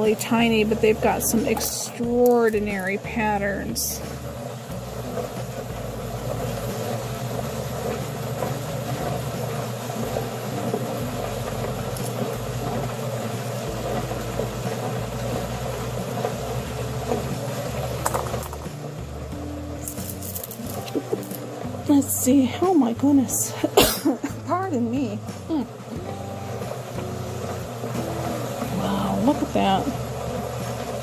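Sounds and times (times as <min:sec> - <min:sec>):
rock tumbler humming: 0:00.0 - 0:31.0
stones clicking: 0:19.8 - 0:21.4.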